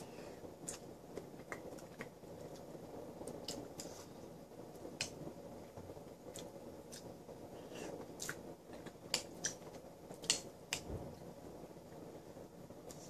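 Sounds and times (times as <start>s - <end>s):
low room hum: 0.0s - 13.0s
chewing smacks: 8.2s - 9.6s.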